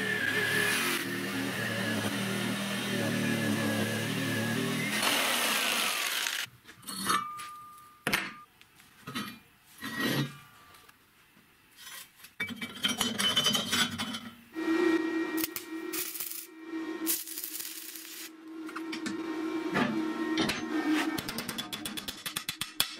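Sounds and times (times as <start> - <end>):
jigsaw cutting steel: 0.0 - 6.5
arc welding crackle and hiss: 5.0 - 6.5, 15.4 - 18.4
steady hum: 14.6 - 21.2.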